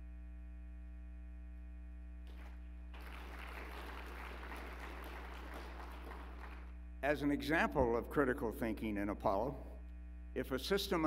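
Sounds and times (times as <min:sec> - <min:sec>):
low electrical hum: 0:00.0 - 0:11.0
audience applause: 0:02.3 - 0:06.7.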